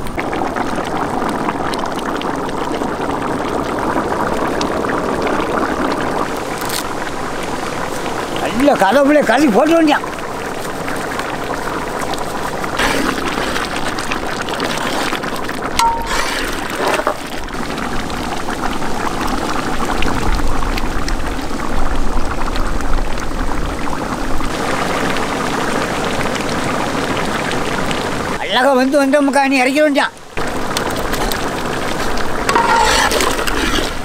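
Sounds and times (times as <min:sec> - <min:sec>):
curry simmering and bubbling: 0:00.0 - 0:29.4, 0:30.4 - 0:34.0
ladle stirring thick gravy: 0:10.5 - 0:17.5, 0:30.9 - 0:34.0.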